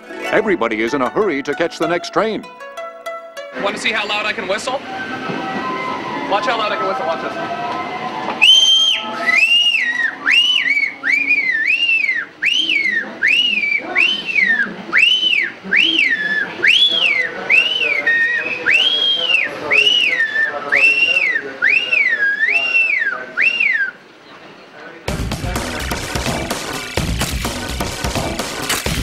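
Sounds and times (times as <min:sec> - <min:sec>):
man whistling with fingers: 0:08.2 - 0:24.0.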